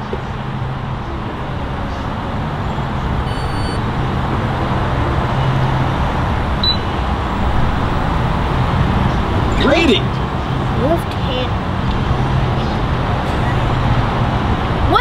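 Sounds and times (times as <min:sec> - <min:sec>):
traffic rumble: 0:00.0 - 0:15.0
fuel pump keypad beep: 0:03.3 - 0:03.8, 0:06.6 - 0:07.0.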